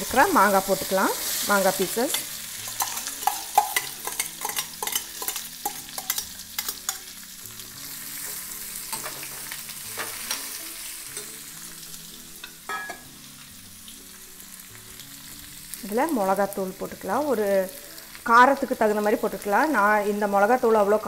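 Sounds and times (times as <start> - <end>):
light sizzle in oil: 0.0 - 21.0
spoon clicking and scraping a pan: 2.1 - 7.3, 8.2 - 11.4, 12.4 - 13.1.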